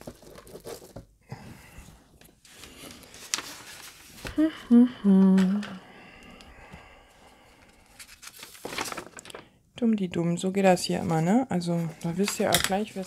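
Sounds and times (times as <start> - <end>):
paper sheets rustling: 2.4 - 4.4, 7.4 - 9.6
woman humming: 4.3 - 6.2.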